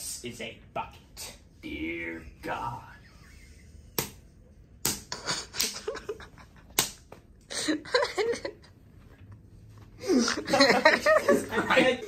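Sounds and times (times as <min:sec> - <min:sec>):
sharp smacks: 0:04.8 - 0:05.7.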